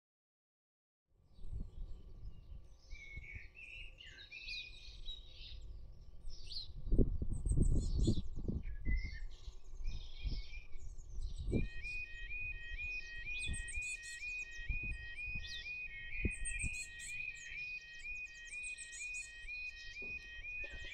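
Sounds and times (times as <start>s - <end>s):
small birds singing: 1.2s - 20.9s
level crossing warning alarm: 11.5s - 20.9s.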